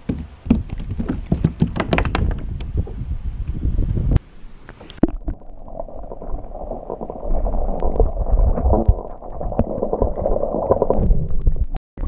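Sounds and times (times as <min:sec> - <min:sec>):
muffled underwater sloshing and bubbling: 0:04.9 - 0:11.8.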